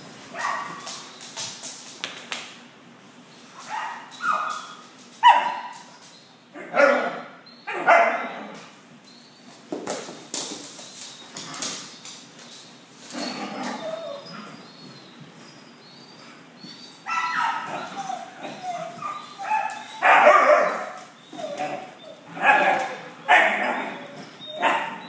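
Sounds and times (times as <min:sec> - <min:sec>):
dogs barking and yipping: 0:00.3 - 0:01.2, 0:03.5 - 0:08.6, 0:13.0 - 0:25.0.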